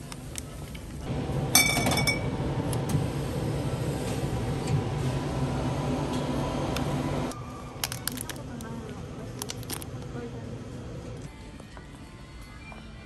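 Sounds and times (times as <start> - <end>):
steady low hum: 0.3 - 7.7
glass bottles clinking: 1.6 - 2.3.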